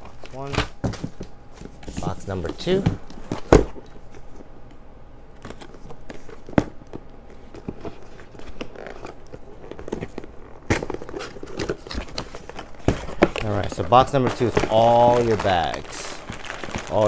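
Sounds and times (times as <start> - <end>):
cardboard boxes scraping and rustling: 7.6 - 17.0.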